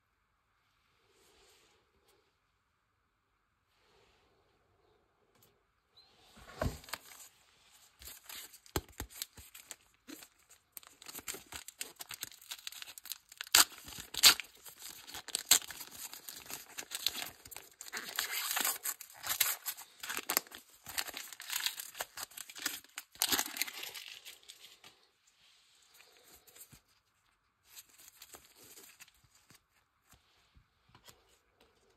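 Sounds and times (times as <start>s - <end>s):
foil wrapper crinkling and tearing: 8.1s - 24.9s.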